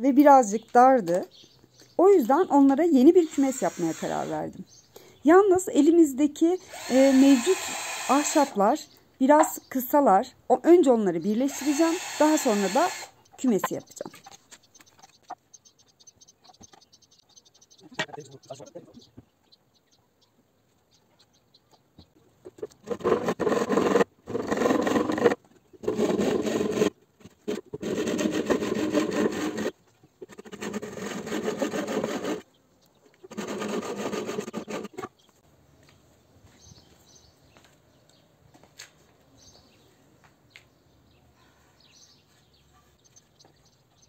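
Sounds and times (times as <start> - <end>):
hand saw cutting wood: 3.0 - 4.4, 6.6 - 8.6, 11.5 - 13.1, 22.6 - 32.5, 33.3 - 35.1.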